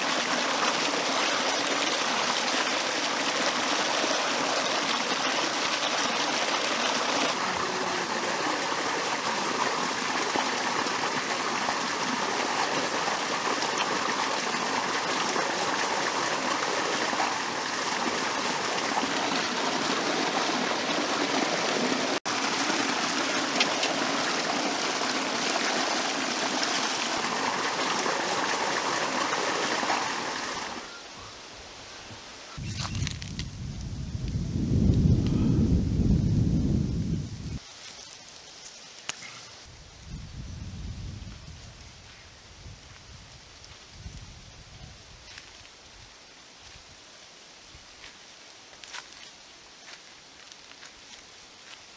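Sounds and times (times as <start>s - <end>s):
stream water rushing over rocks: 0.0s - 31.8s.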